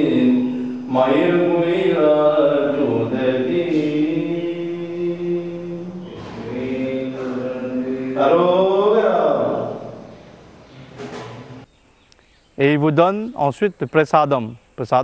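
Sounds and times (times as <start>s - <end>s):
person chanting: 0.0s - 11.6s.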